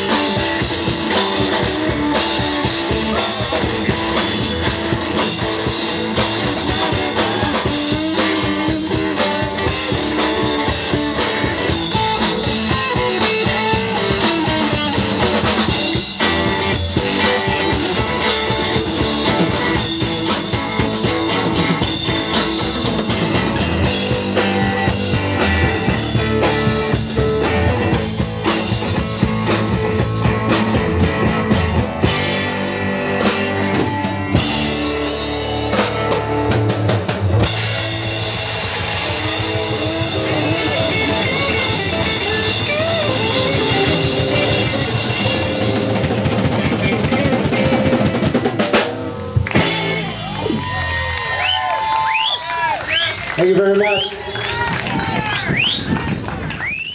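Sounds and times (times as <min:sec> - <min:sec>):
bass guitar: 0:00.0 - 0:56.9
drum kit: 0:00.0 - 0:56.9
electric guitars: 0:00.0 - 0:56.9.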